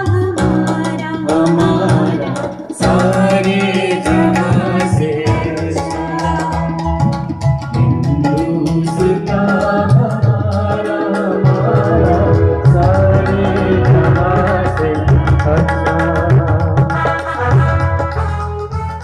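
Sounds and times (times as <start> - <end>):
man and woman singing: 0.0 - 7.1, 7.9 - 16.8
electronic keyboard chords: 0.0 - 19.0
tabla strokes: 0.0 - 19.0.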